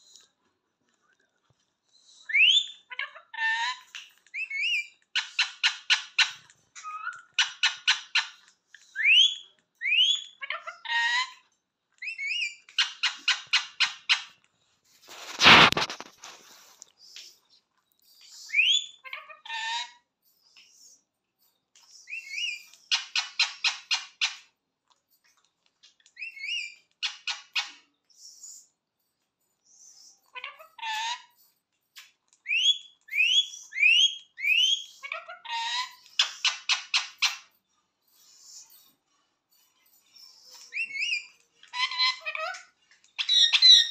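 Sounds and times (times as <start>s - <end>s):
parakeet whistled chirps: 32.5s - 35.2s.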